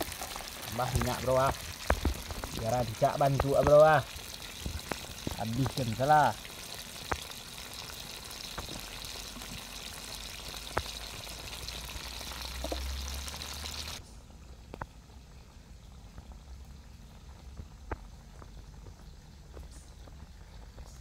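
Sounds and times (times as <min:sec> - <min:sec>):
fish sizzling in oil: 0:00.0 - 0:14.0.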